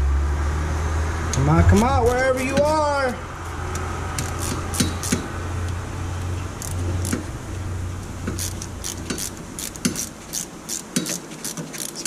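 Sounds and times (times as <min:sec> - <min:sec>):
socket ratchet clicking: 0:04.2 - 0:05.3, 0:06.6 - 0:07.3, 0:08.3 - 0:12.0.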